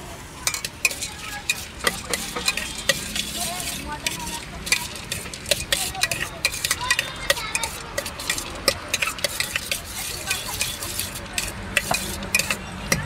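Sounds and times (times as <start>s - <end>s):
spoon clinking in steel bowl: 0.5s - 13.0s.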